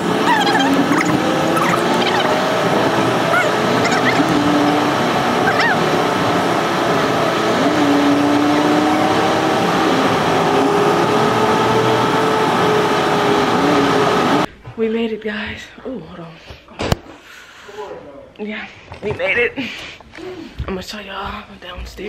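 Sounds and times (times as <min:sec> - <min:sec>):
car road and engine noise: 0:00.0 - 0:14.5
held tones shifting in pitch: 0:00.0 - 0:14.5.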